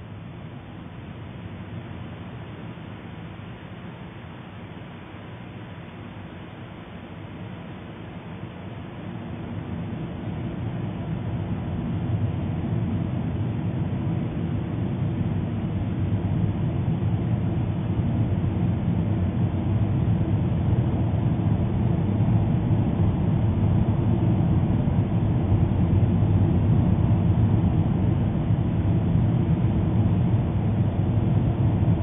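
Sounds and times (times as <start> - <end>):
low rumbling noise: 10.3 - 32.0.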